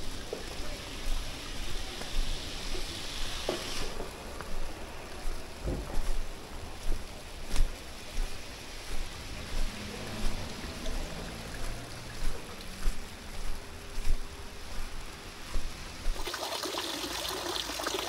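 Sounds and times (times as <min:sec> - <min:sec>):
water flowing in a channel: 0:00.0 - 0:18.0
footsteps on packed snow: 0:00.4 - 0:16.2.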